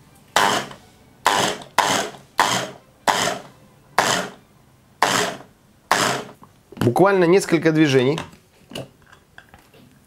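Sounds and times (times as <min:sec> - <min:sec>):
immersion blender pulsing: 0:00.4 - 0:04.4, 0:05.0 - 0:06.4.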